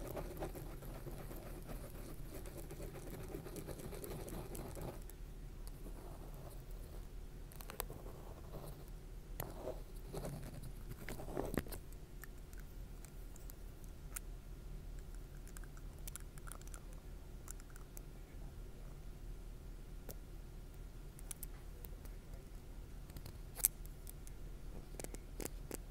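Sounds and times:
marker scratching: 0.0s - 5.0s.

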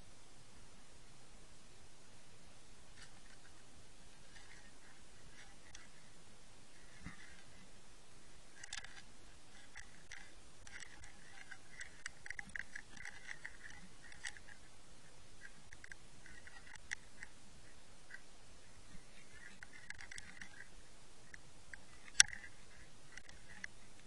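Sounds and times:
underwater clicking and ticking: 8.6s - 14.7s, 15.4s - 17.4s, 19.3s - 23.7s.

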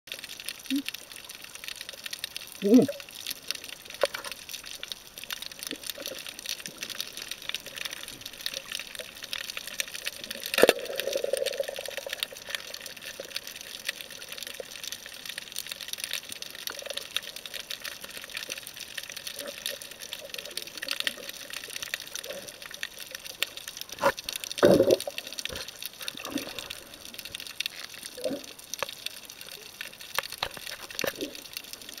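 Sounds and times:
bubbly rush: 5.0s - 15.0s, 23.8s - 27.4s
knocks and bubbly bursts: 10.3s - 12.8s, 23.9s - 25.6s.

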